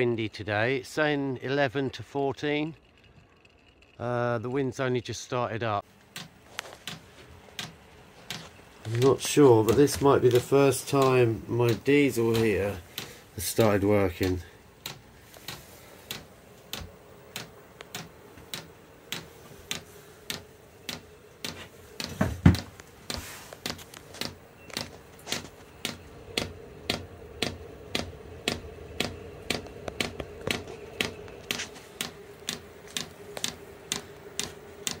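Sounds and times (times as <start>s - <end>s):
heater fan hum: 0.0s - 35.0s
fuel pump ticking: 9.0s - 22.7s.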